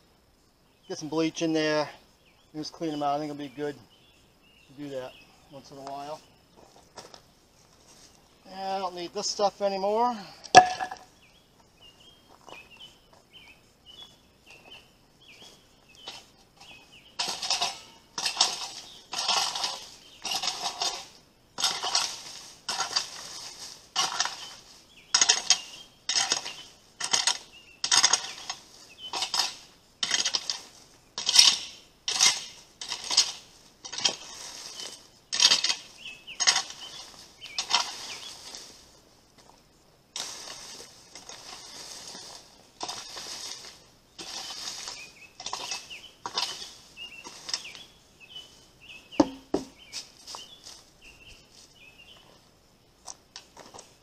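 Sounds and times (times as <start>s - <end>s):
rake scraping through dry leaves: 15.2s - 39.2s, 40.2s - 49.1s, 49.8s - 52.2s.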